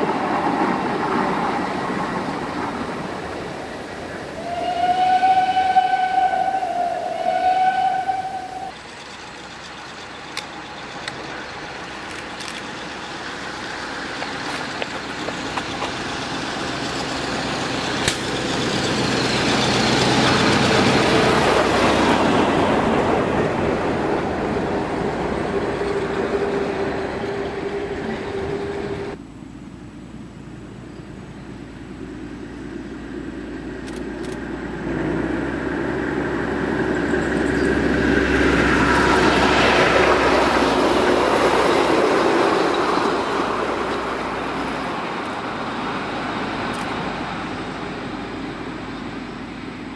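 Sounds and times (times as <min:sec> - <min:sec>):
diesel train passing: 0:00.0 - 0:49.9
locomotive horn: 0:04.3 - 0:08.7.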